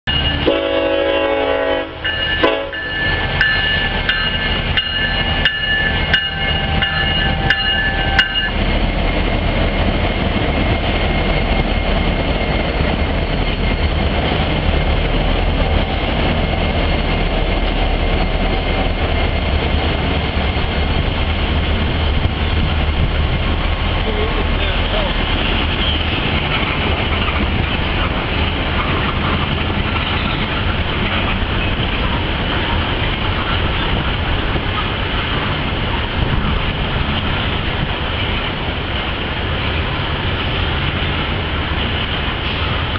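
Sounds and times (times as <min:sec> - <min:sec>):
locomotive horn chord: 0:00.4 - 0:03.1.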